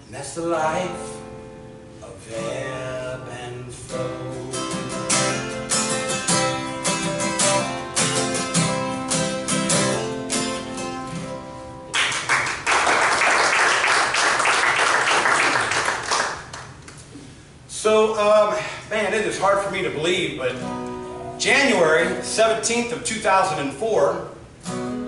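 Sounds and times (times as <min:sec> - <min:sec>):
solo guitar playing: 0:00.7 - 0:12.0, 0:20.4 - 0:22.8, 0:24.6 - 0:25.0
audience applause: 0:11.9 - 0:16.7.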